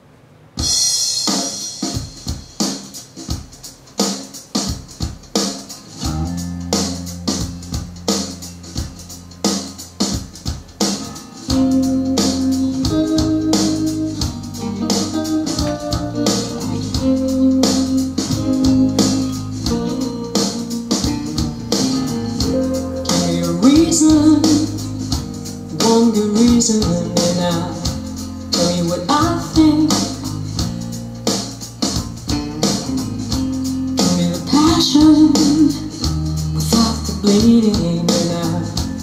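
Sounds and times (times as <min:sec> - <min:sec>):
drum hits: 0:00.6 - 0:36.4
pitched instruments: 0:06.0 - 0:25.8
bass line: 0:06.0 - 0:39.0.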